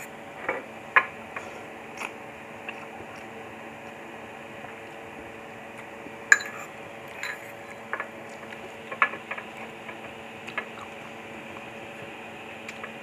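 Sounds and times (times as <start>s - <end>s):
background hum: 0.0s - 13.0s
slurping and chewing: 1.4s - 5.1s, 10.4s - 12.9s
fork clinking against bowl: 6.3s - 7.7s.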